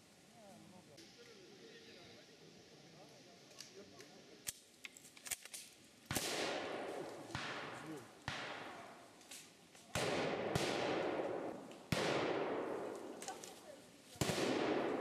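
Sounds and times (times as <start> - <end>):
rifle shots echoing: 6.1 - 9.0, 9.9 - 13.5, 14.2 - 15.0.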